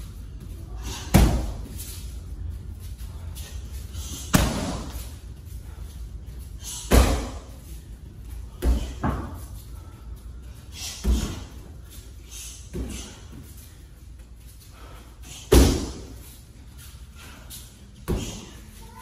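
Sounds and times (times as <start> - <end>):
kicks striking padded shield: 1.1 - 1.6, 4.3 - 5.0, 6.9 - 7.4, 15.5 - 16.1.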